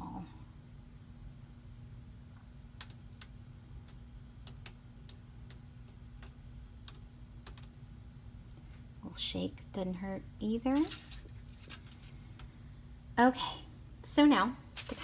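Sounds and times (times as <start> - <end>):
faint clicks and ticks: 1.9 - 7.8.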